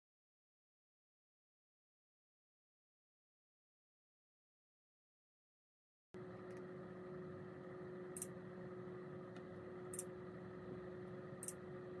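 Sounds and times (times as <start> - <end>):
electrical hum and hiss: 6.2 - 12.0.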